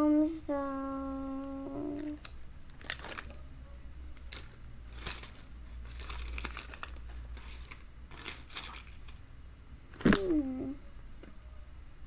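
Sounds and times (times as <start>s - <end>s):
packaging crinkling: 2.0s - 3.4s, 4.2s - 9.2s, 9.9s - 10.4s.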